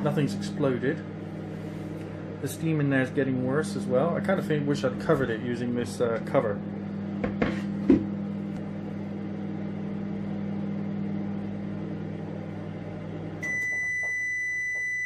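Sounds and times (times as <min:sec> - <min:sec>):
microwave oven humming: 0:00.0 - 0:15.0
long microwave beep: 0:13.4 - 0:15.0.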